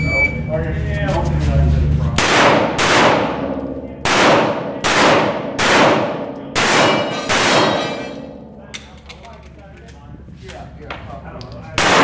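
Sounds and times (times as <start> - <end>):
pistol shots echoing: 2.2 - 8.3, 11.8 - 12.0.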